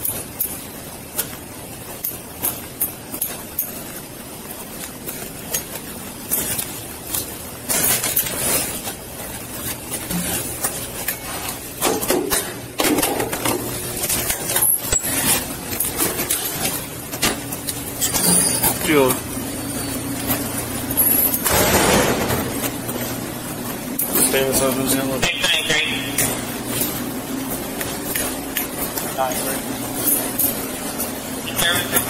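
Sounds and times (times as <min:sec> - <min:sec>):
metal gear clinking and jangling: 0:18.0 - 0:18.8.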